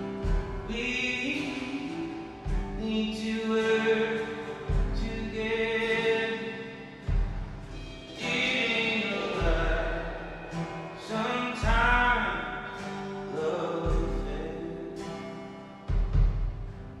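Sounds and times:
man singing: 0.0 - 7.1, 7.8 - 15.2
strummed acoustic guitar: 0.0 - 17.0
kick drum thumping: 0.2 - 0.8, 2.5 - 2.9, 4.7 - 5.5, 7.0 - 8.0, 9.4 - 10.3, 11.6 - 12.6, 13.8 - 14.5, 15.9 - 17.0.

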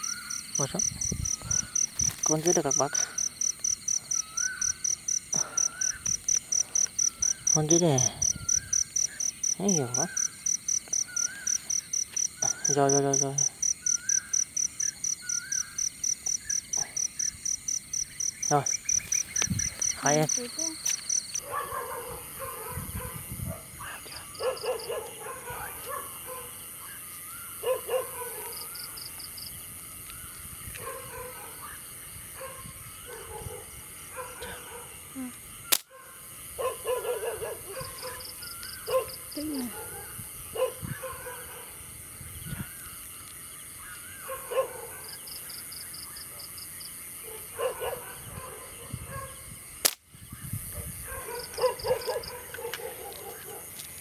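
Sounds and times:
sharp clicks: 35.7 - 35.9, 49.8 - 50.0.

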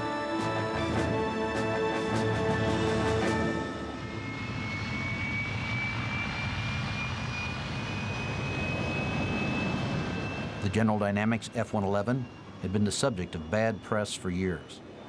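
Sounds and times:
music: 0.0 - 4.0
jet engines with afterburner: 0.0 - 15.0.

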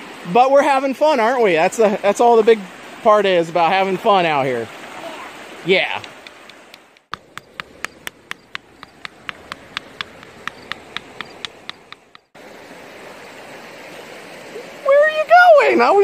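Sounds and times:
creek water rushing: 0.0 - 16.0
rock striking stones: 6.0 - 12.3.

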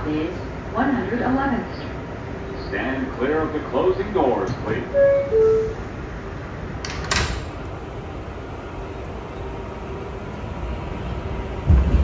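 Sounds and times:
hum of stopped subway car: 0.0 - 12.0
subway car doors sliding shut: 4.4 - 7.8
faint tone: 4.9 - 5.8.

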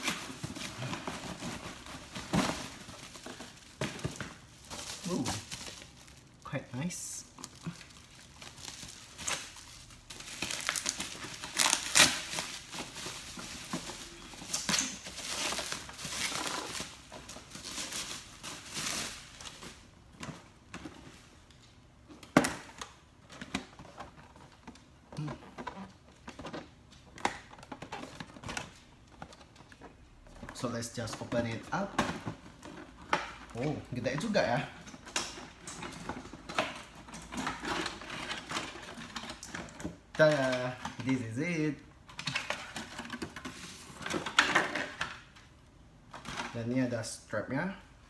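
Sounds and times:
bubble wrap crinkling: 0.0 - 19.9.

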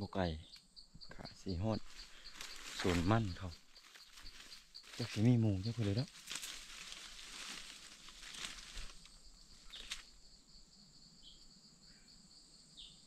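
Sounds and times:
high insect drone: 0.0 - 13.0
leaves and brush rustling: 1.5 - 10.4.

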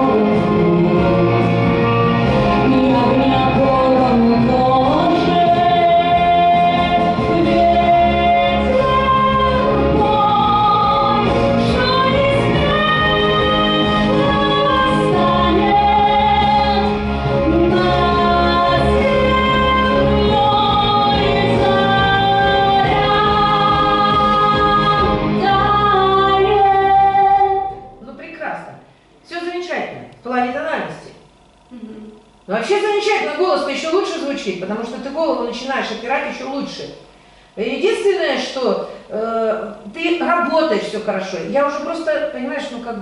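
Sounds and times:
woman singing with vibrato: 0.0 - 28.2
accompaniment track with bass: 0.0 - 28.9.

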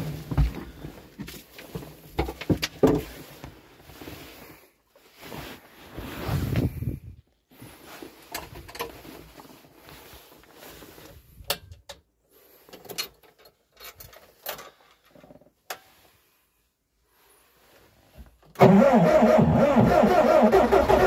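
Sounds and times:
rustling: 0.0 - 11.4
clicks and knocks of handling: 0.3 - 3.1, 8.2 - 9.4, 12.7 - 15.9.

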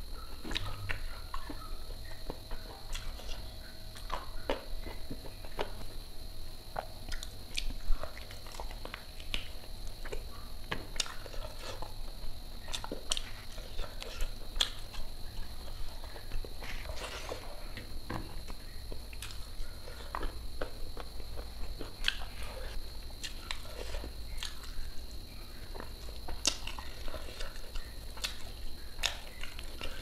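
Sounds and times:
faint high hum: 0.0 - 30.0
chewing and wet mouth smacks: 6.8 - 11.9, 12.6 - 17.4, 18.9 - 24.9, 25.7 - 30.0.

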